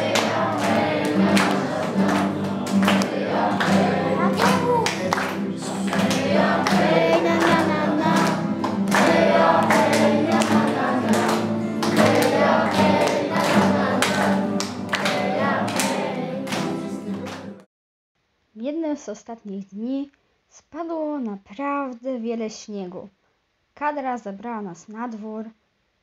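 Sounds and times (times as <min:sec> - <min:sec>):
sharp beat strokes: 0:00.0 - 0:16.0
group of voices singing: 0:00.0 - 0:17.6.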